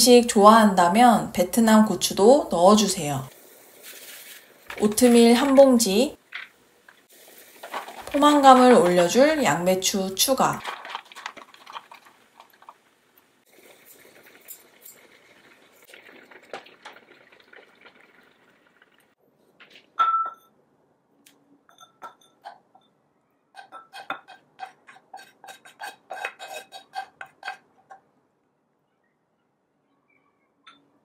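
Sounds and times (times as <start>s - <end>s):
metal tongs stirring: 7.3s - 12.7s, 23.6s - 28.0s
pot simmering softly: 11.0s - 19.2s
spoon scraping and tapping pot: 21.7s - 22.9s, 23.6s - 28.0s.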